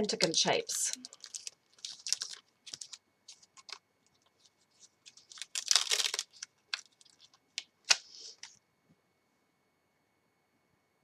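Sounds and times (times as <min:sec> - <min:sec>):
rustling of handled supplies: 0:00.2 - 0:08.6.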